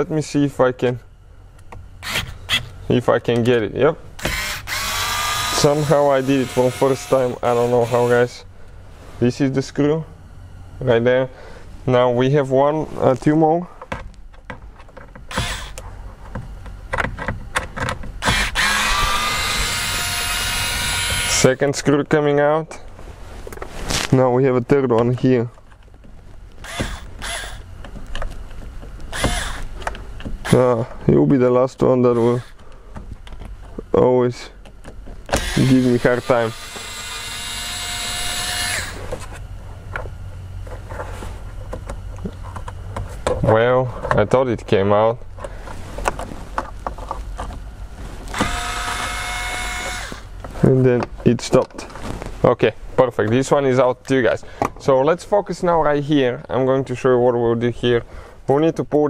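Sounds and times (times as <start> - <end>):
electric screwdriver motor whine: 2.0 - 2.7, 4.2 - 8.0, 15.3 - 15.8, 18.2 - 21.4, 26.6 - 27.7, 29.1 - 29.7, 35.3 - 39.1, 48.3 - 50.3.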